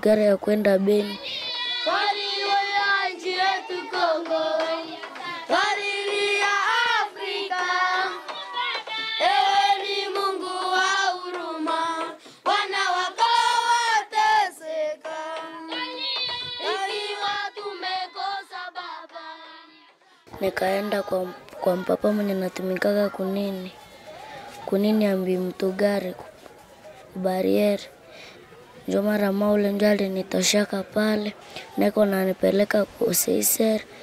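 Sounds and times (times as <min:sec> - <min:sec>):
children singing together: 0:01.1 - 0:19.9.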